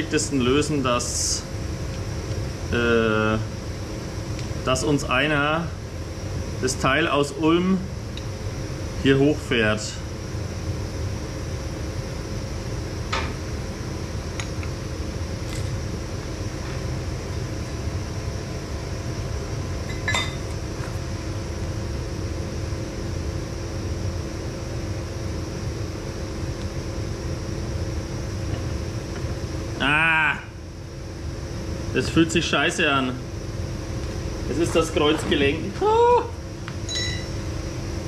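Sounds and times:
machinery hum: 0.0s - 38.0s
metallic clinks: 36.9s - 37.4s.

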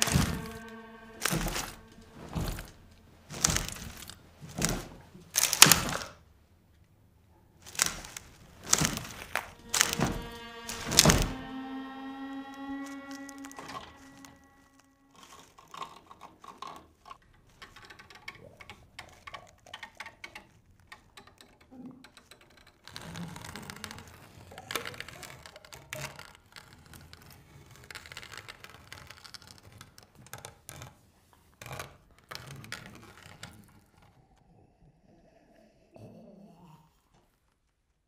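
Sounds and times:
rustling: 0.0s - 6.3s, 7.4s - 18.0s
faint clicks and creaks: 0.0s - 34.5s.

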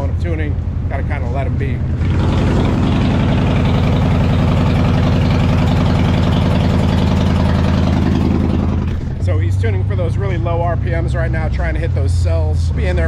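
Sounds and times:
motorcycle engine running at low rpm: 0.0s - 11.2s.

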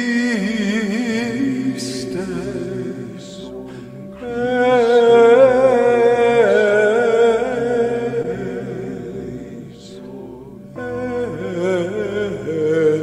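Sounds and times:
man chanting a long note: 0.0s - 13.0s
steady drone: 0.0s - 13.0s
man breathing in: 3.6s - 4.2s.

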